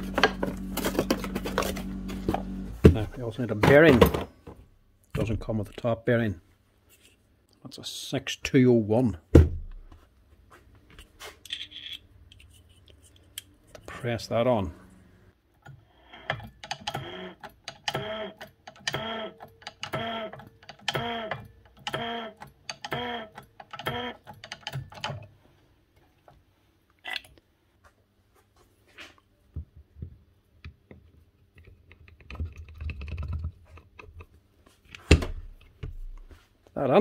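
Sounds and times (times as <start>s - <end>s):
short low hum: 0.0s - 3.2s.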